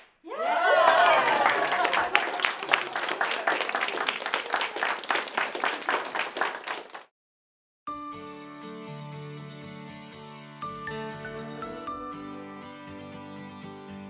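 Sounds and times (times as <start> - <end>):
small group clapping: 0.0 - 7.1
soft background music: 8.2 - 14.0.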